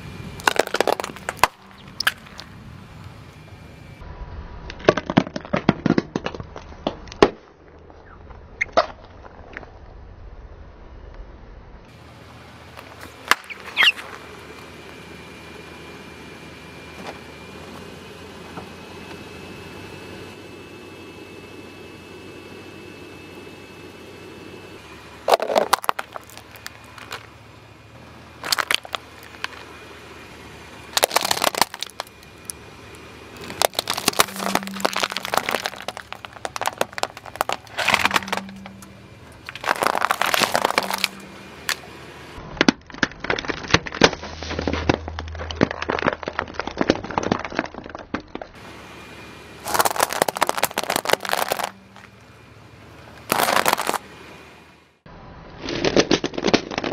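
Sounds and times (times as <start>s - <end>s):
car tyre crushing plastic objects: 0.3s - 3.1s, 4.7s - 10.0s, 12.8s - 14.3s, 25.1s - 48.6s, 49.6s - 52.4s, 53.0s - 54.2s, 55.2s - 56.9s.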